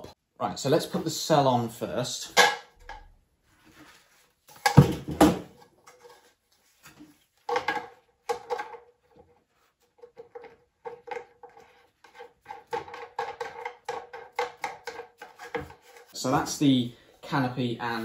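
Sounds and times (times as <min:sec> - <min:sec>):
loud knocks on lamp parts: 0:04.6 - 0:05.5
plastic and metal rattling: 0:07.4 - 0:16.2.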